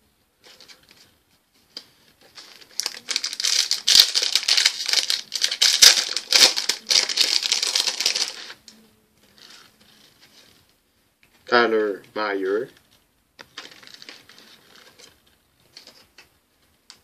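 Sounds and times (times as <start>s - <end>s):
plastic wrapper crinkling: 1.8s - 10.6s, 13.4s - 16.3s.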